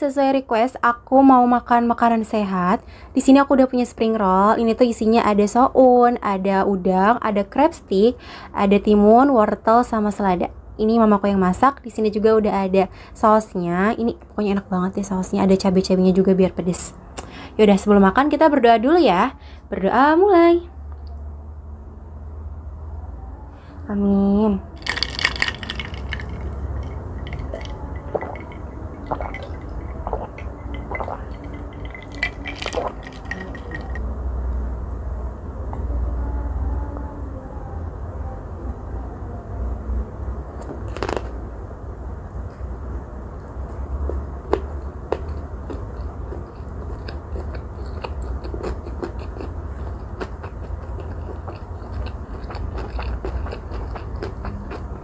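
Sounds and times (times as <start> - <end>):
steady low hum: 0.0 - 55.0
person gulping water: 24.8 - 34.0
wet chewing: 24.8 - 34.0, 43.7 - 55.0.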